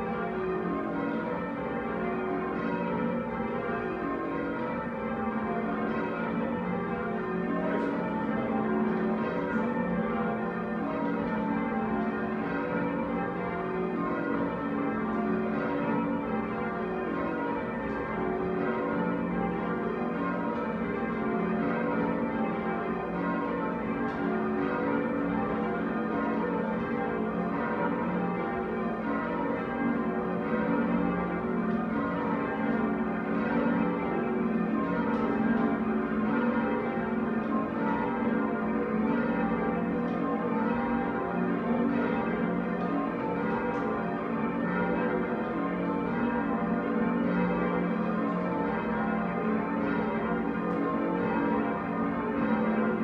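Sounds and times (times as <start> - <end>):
church bells ringing: 0.0 - 53.0.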